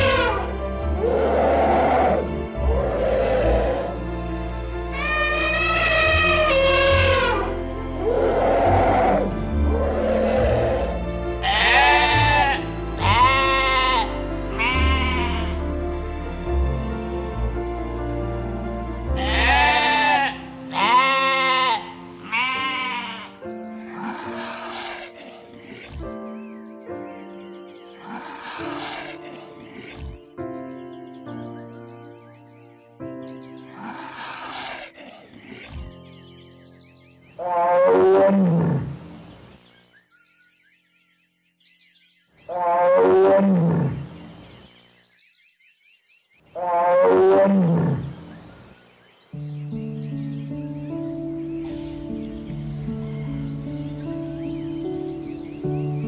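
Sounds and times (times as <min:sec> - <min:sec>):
deep animal call: 0:00.0 - 0:04.1, 0:04.9 - 0:15.7, 0:19.1 - 0:26.2, 0:28.0 - 0:30.4, 0:33.7 - 0:36.1, 0:37.4 - 0:39.2, 0:42.4 - 0:44.3, 0:46.5 - 0:48.4
background music: 0:00.0 - 0:39.8, 0:42.4 - 0:44.6, 0:46.5 - 0:56.0
goat bleating: 0:05.0 - 0:07.5, 0:11.4 - 0:15.6, 0:19.2 - 0:25.5, 0:28.0 - 0:29.4
hissing noise: 0:51.6 - 0:53.4.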